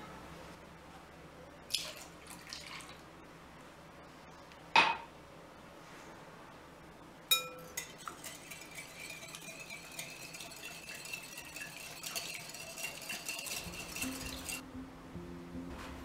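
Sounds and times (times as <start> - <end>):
thin ringing of glass: 7.3 - 8.1
whisk clinking in glass bowl: 7.3 - 14.6.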